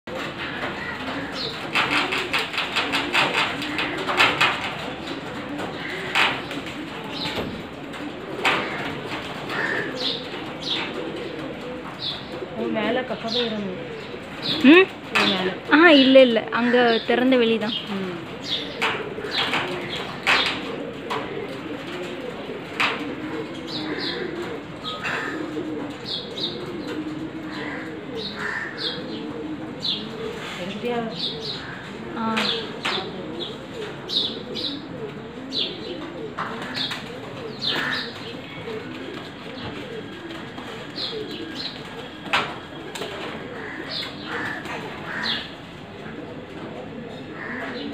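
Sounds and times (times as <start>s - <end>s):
wings flapping: 0.1s - 13.4s, 18.2s - 28.7s, 36.4s - 46.7s
pigeons cooing: 0.1s - 47.9s.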